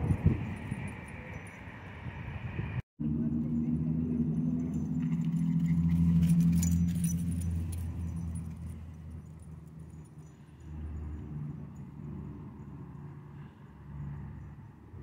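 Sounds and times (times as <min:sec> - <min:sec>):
passing car engine hum: 0:00.0 - 0:15.0
dog collar tags jingling: 0:04.3 - 0:12.2.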